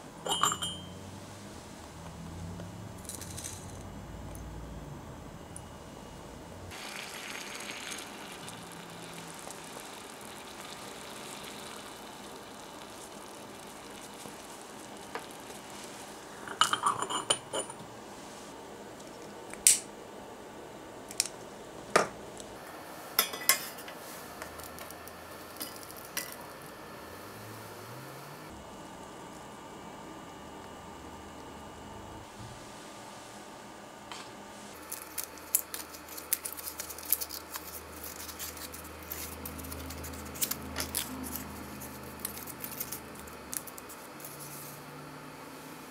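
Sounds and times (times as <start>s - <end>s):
ceramic lid clinking on pot: 0.2s - 0.9s
water trickling from teapot: 6.7s - 15.0s.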